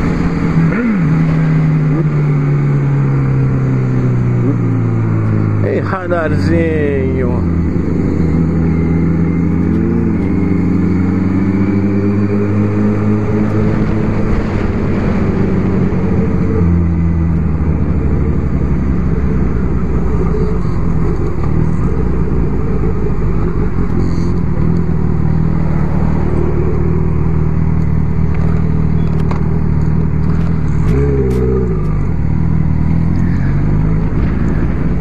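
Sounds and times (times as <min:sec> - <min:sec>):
motorcycle engine running: 0:00.0 - 0:35.0.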